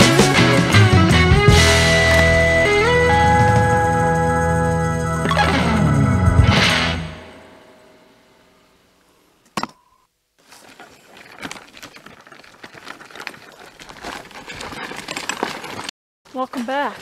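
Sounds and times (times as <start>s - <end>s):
wagon wheels crunching on gravel: 1.5s - 4.7s, 10.4s - 17.0s
wagon frame and load rattling: 1.5s - 5.5s, 10.4s - 17.0s.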